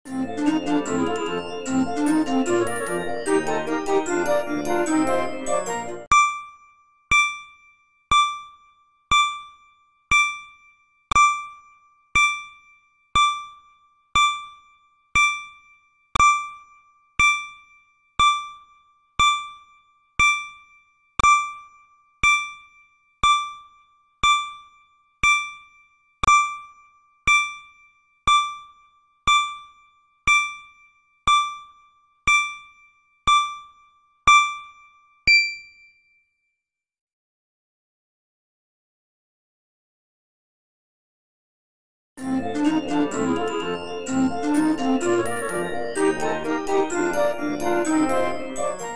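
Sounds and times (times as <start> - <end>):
electronic timer beeps: 6.1 - 36.0.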